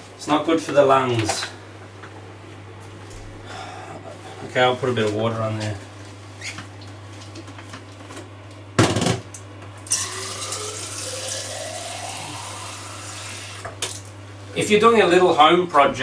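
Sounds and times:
water running into a glass jar: 9.9 - 13.6.

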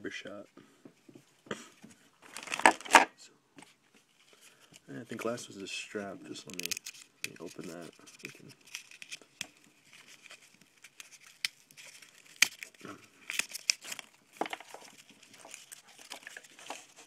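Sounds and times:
paper tearing and crumpling: 2.2 - 3.0, 6.3 - 17.0.

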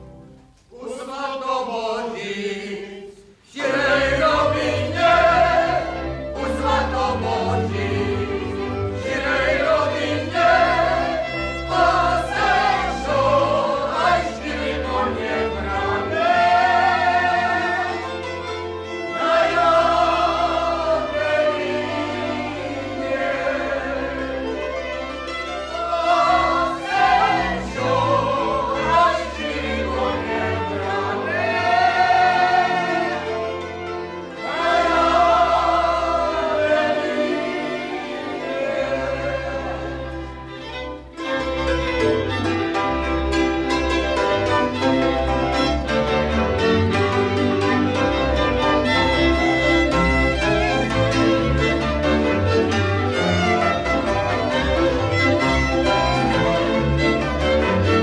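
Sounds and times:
men and women singing folk song: 0.7 - 40.8.

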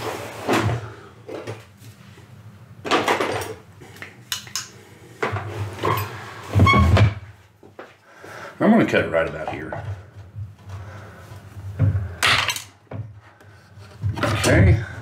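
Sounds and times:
tools clattering on workbench: 12.2 - 13.0.

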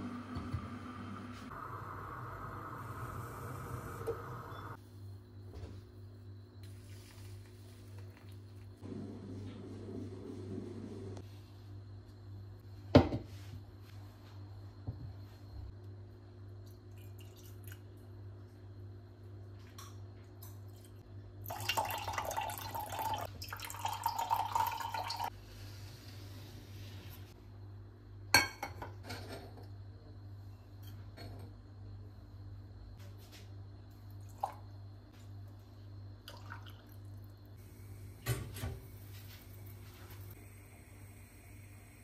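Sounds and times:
steady low hum: 0.0 - 17.0, 37.0 - 42.0
liquid being poured: 21.5 - 25.3.

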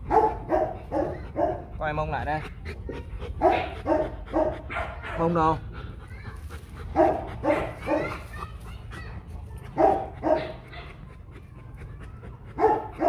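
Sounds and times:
dog barking: 0.0 - 1.7, 3.4 - 5.4, 6.9 - 8.4, 9.7 - 11.0, 12.5 - 13.0.

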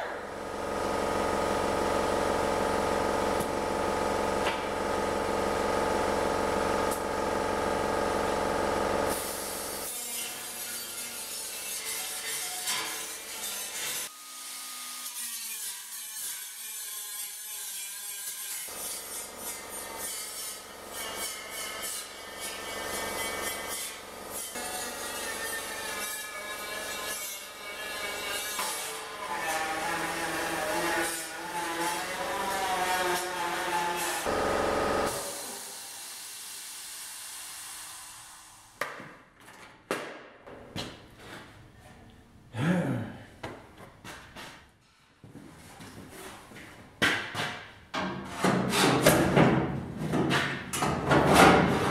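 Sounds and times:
die grinder whining: 0.4 - 11.0, 20.6 - 36.1.

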